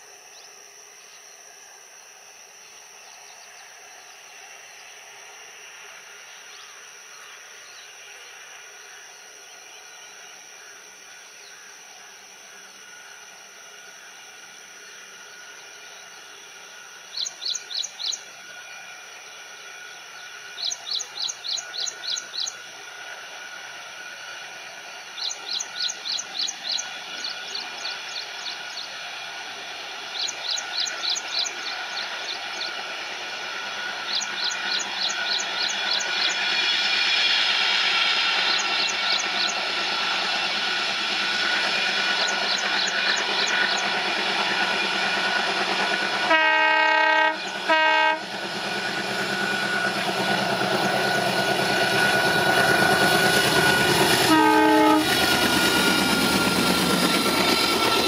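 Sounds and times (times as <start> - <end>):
diesel train approaching: 0.0 - 58.0
train horn: 46.2 - 48.4, 52.0 - 55.8.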